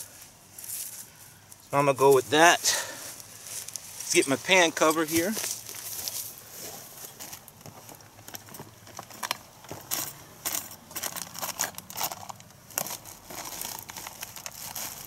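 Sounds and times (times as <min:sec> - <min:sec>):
gear crinkling and rustling: 0:00.0 - 0:15.0.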